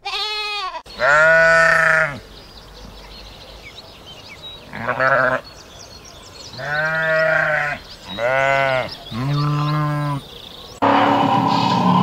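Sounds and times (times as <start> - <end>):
sheep bleating: 0.0 - 2.2, 4.7 - 5.5, 6.6 - 10.2
loud abrupt sound: 10.8 - 12.0.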